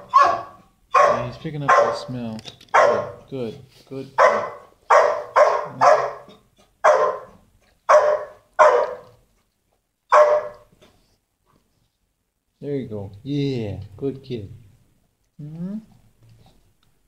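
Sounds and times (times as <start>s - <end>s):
dog barking: 0.0s - 2.1s, 2.7s - 3.3s, 4.2s - 9.2s, 10.1s - 10.7s.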